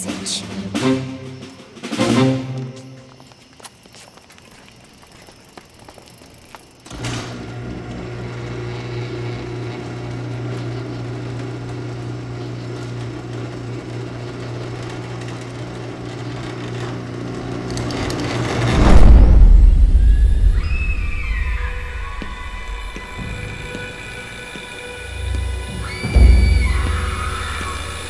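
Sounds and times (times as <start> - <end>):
garage door opener humming: 6.8 - 19.2, 20.3 - 28.0
loud low rumble: 18.7 - 28.0.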